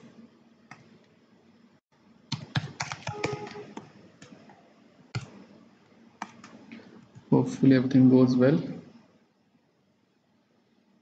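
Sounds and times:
computer keyboard typing: 2.3s - 4.4s, 5.1s - 5.4s, 6.2s - 7.2s.

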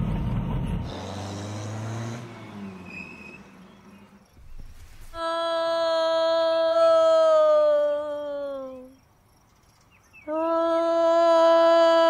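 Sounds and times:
vehicle engine drone: 0.0s - 6.7s.

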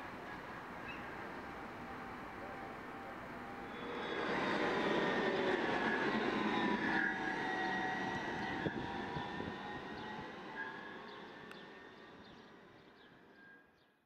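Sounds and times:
tram wheels rumbling on rail: 0.0s - 12.9s
thin wavering whine: 0.2s - 11.0s.

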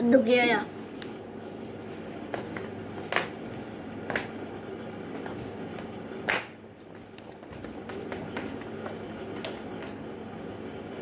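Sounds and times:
steady low hum: 0.0s - 11.0s
flip-flop footsteps on tile: 1.0s - 4.4s, 5.1s - 10.0s.

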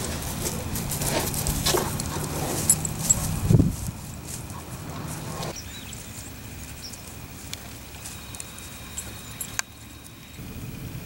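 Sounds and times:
steady hiss: 0.0s - 11.0s
faint bird chirps and ticks: 5.5s - 10.4s.

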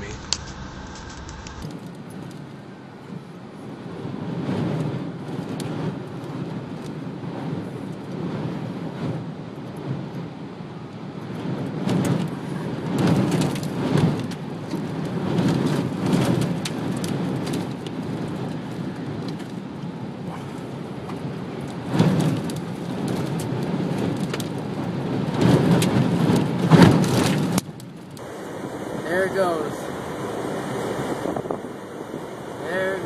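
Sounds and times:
storm wind battering car: 0.0s - 33.0s
rain ticking on glass: 11.4s - 19.9s, 21.0s - 28.2s.

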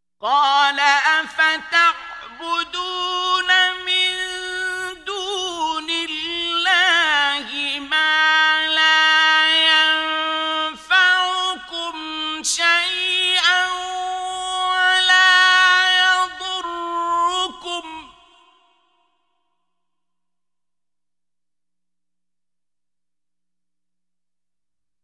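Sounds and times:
man reciting melodically: 0.2s - 18.7s.

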